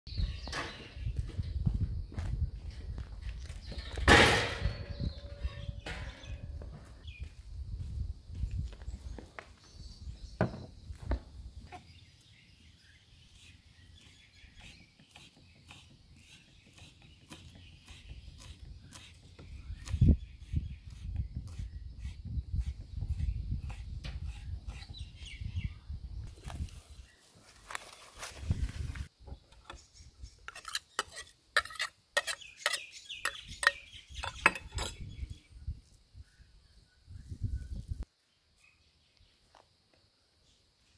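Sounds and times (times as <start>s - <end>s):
faint bird chirps: 3.6s - 7.3s.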